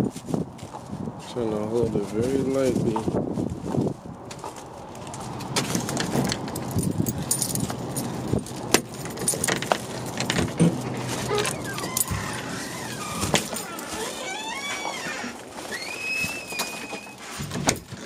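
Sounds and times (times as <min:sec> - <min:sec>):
keys jangling: 0:05.6 - 0:14.2.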